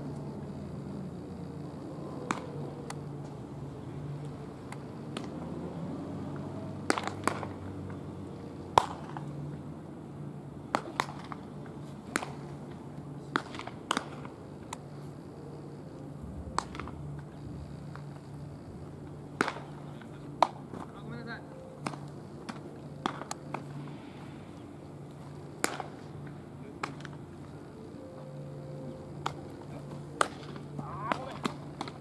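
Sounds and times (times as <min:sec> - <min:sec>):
low steady hum: 0:00.0 - 0:32.0
baseballs popping into gloves: 0:02.2 - 0:03.0, 0:06.8 - 0:07.6, 0:08.7 - 0:09.3, 0:10.7 - 0:11.4, 0:12.1 - 0:12.4, 0:13.3 - 0:14.8, 0:16.4 - 0:17.0, 0:19.4 - 0:19.8, 0:21.8 - 0:23.7, 0:25.6 - 0:26.0, 0:30.1 - 0:32.0.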